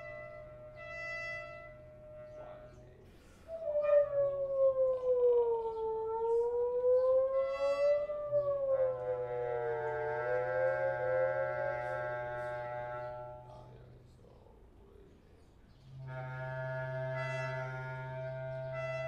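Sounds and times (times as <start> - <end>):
brass and winds holding soft tones: 0.0 - 19.0
siren-like sliding tone: 3.5 - 13.6.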